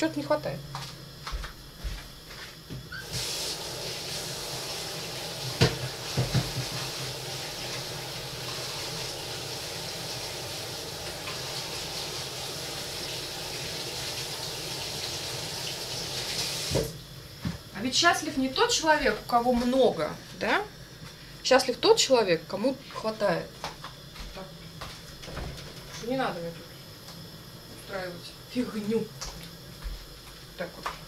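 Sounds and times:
tap running into sink: 0:05.4 - 0:07.1.

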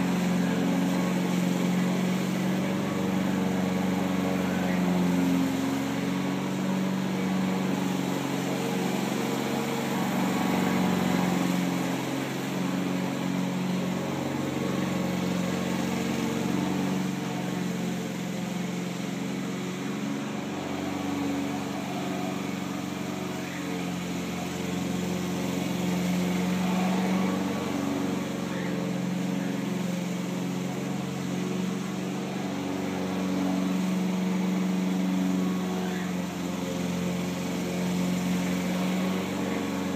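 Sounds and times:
lawn mower engine running: 0:00.0 - 0:39.9.

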